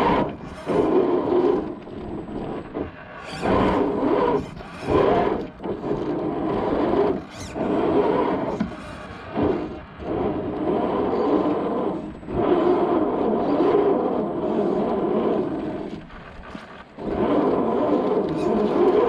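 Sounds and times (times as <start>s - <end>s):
toy car electric motor whining: 3.2s - 5.6s, 6.7s - 9.7s, 17.1s - 19.0s.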